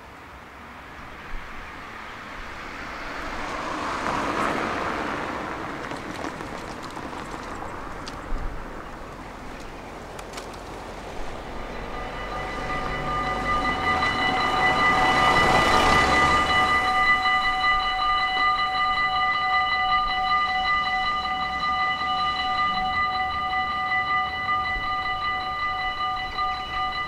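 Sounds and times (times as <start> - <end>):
vehicle passing: 0.6 - 26.9
car driving over crossing: 2.2 - 9.1, 10.7 - 27.0
crossing warning bell ringing: 11.1 - 27.0.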